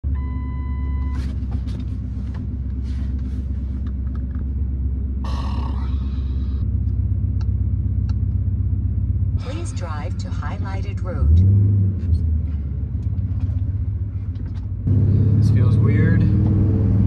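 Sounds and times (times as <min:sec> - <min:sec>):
truck engine idling: 0:00.0 - 0:11.6.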